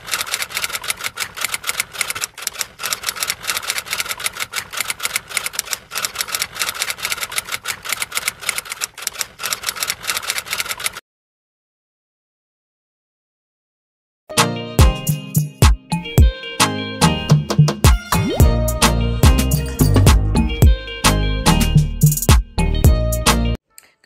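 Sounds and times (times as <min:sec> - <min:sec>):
typewriter key clicks: 0:00.0 - 0:11.0.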